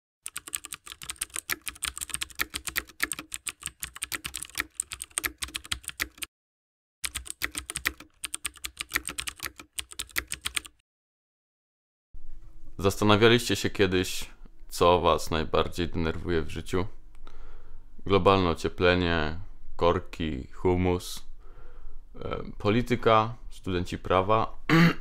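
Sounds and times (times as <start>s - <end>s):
computer keyboard typing: 0.2s - 6.3s, 7.0s - 10.8s.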